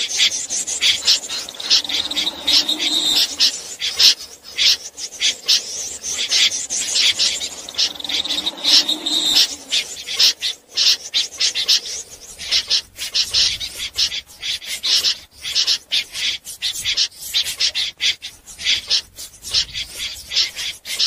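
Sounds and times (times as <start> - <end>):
snipe rasping calls: 0.0 - 21.0.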